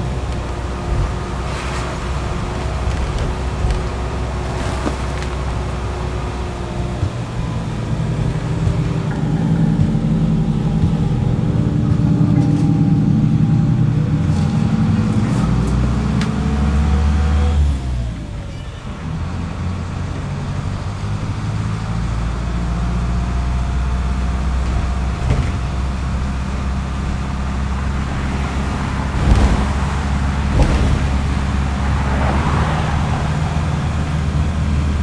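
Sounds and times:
bus engine and road rumble: 0.0s - 35.0s
rising engine whine: 0.0s - 35.0s.

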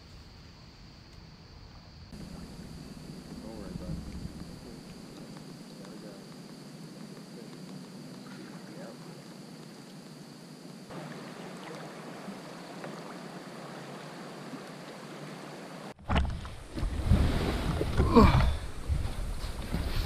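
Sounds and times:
kayak hauled onto sand rumbling: 2.2s - 8.7s, 15.9s - 20.0s
water washing around kayak: 10.9s - 20.0s.

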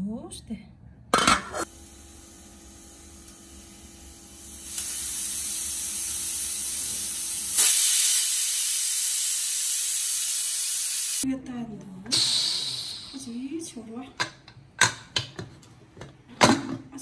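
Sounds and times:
pressure cooker hissing steam: 1.6s - 11.2s, 12.1s - 13.4s.

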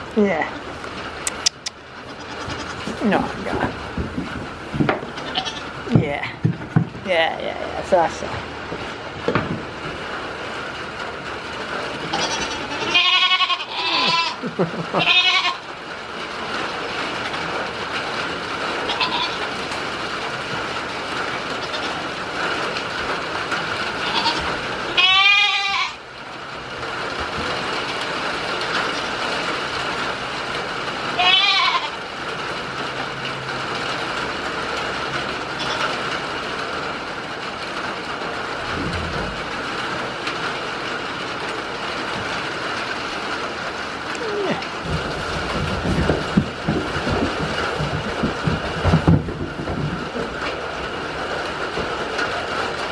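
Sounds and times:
rain hissing: 0.0s - 25.1s, 26.0s - 52.9s
goats bleating: 2.0s - 3.4s, 5.1s - 5.8s, 12.1s - 15.6s, 18.9s - 19.5s, 24.0s - 26.0s, 31.2s - 32.0s.

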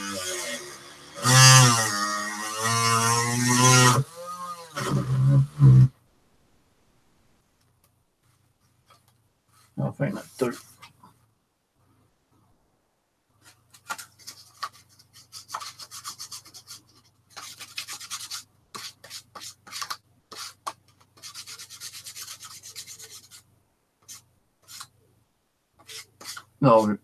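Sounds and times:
sandpaper rubbing cork: 13.4s - 25.0s, 25.8s - 26.9s.

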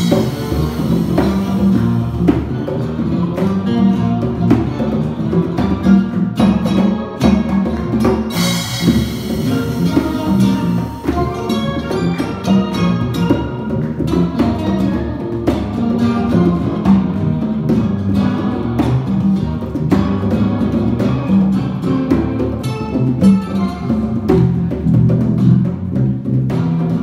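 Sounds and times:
acoustic guitar: 0.0s - 27.0s
conga drums: 0.0s - 27.0s
electric bass: 0.0s - 27.0s
sharp drum strikes: 0.0s - 27.0s.

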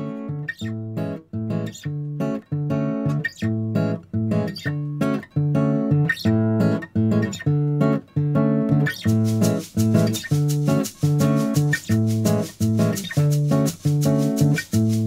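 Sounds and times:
acoustic guitar bossa nova: 0.0s - 15.0s.

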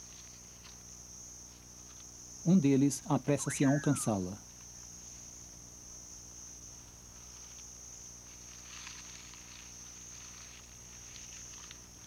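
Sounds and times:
crickets chirping: 0.0s - 12.0s
rustles in leaf litter: 7.4s - 12.0s.

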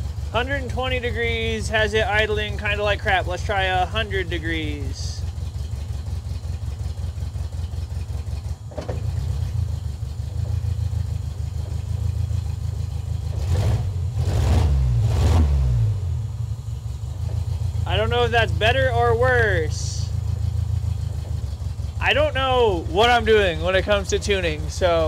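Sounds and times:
engine revs rising and falling: 0.0s - 5.2s, 13.0s - 16.2s, 17.2s - 20.1s, 22.0s - 25.0s
sharp engine noises: 0.0s - 16.2s, 16.8s - 25.0s
car engine idling roughly: 0.0s - 25.0s.

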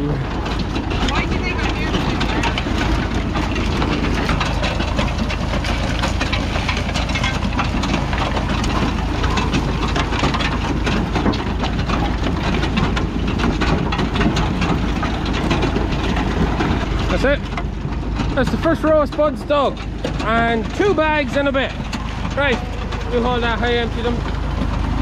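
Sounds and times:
harvester rattling and clattering: 0.0s - 25.0s
tractor engine drone: 0.0s - 25.0s.

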